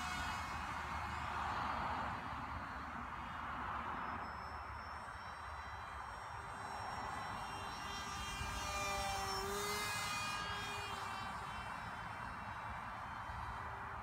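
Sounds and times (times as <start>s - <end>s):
model airplane motor whining: 0.0s - 14.0s.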